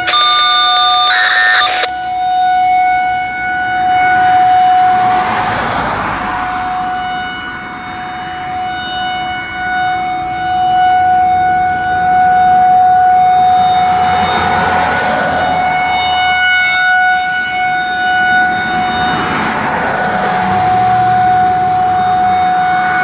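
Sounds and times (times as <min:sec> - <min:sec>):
rushing noise: 0:00.0 - 0:10.5
rotating siren alert tone: 0:00.0 - 0:23.0.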